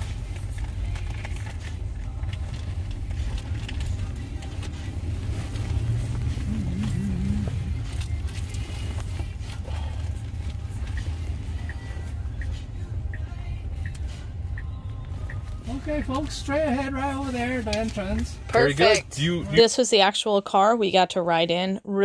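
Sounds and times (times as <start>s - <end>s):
wavering low hum: 0.0s - 16.3s
road and tyre noise in car: 0.0s - 20.2s.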